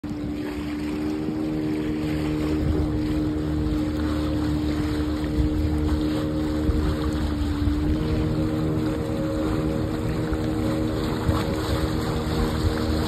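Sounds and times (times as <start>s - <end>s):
motorboat engine running: 0.0s - 13.0s
wind and water hiss: 0.0s - 13.0s.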